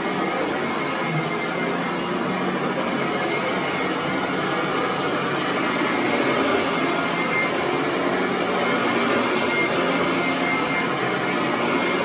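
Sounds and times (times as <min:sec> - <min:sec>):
vacuum cleaner running: 0:00.0 - 0:12.0.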